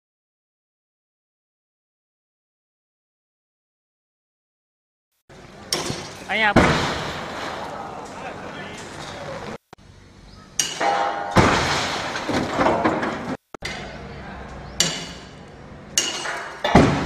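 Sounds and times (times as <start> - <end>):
heavy pendulum impacts: 5.7 - 8.2, 10.6 - 14.0, 14.8 - 17.0
stone walls clinking and rattling: 10.6 - 13.8, 16.0 - 17.0.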